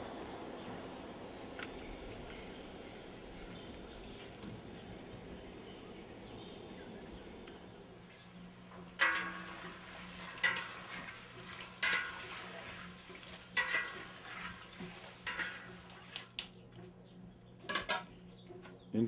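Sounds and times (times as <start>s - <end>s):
faint low hum: 0.0s - 13.2s
utensil scraping a cooking pot: 9.0s - 16.3s.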